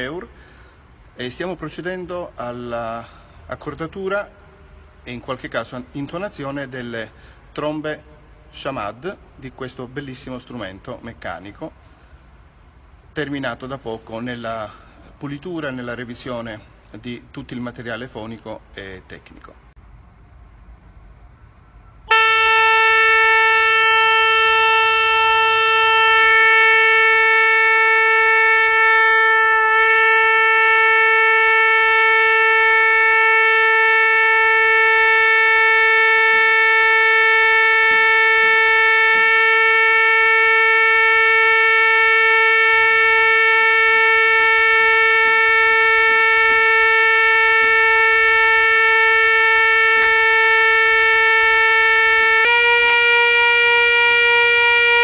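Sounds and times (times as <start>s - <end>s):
organ pipe sustained note: 21.3s - 55.0s.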